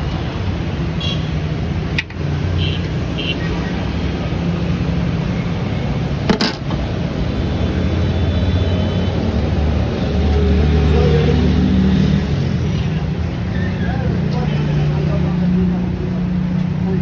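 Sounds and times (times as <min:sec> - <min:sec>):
vehicle engine rumbling: 0:01.5 - 0:08.1.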